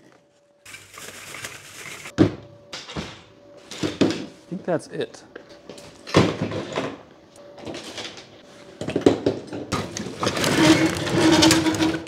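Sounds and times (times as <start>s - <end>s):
steady hum: 0.1s - 6.2s.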